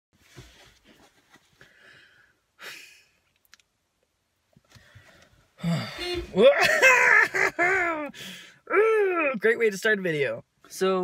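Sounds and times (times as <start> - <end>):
man breathing faintly: 0.3 - 2.8.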